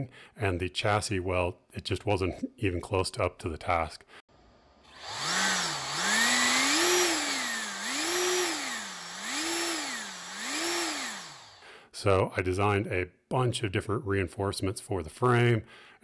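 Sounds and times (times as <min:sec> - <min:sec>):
electric fan whine: 0:04.9 - 0:11.6.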